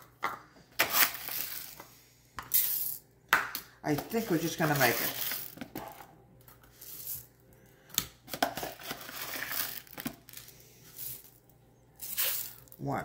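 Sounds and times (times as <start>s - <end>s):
packaging crinkling: 8.6s - 10.5s.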